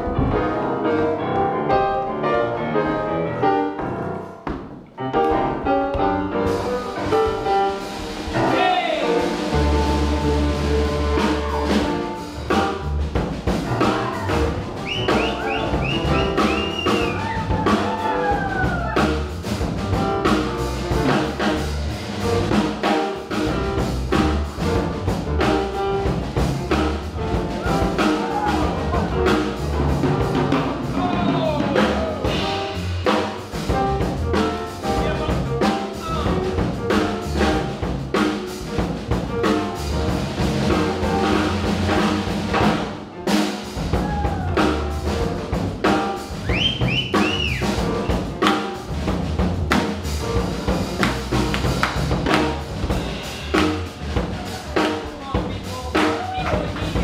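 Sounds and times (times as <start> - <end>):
drum kit beat: 3.7 - 57.0
sliding higher notes: 5.0 - 38.6
upright bass line: 5.4 - 43.0, 43.7 - 57.0.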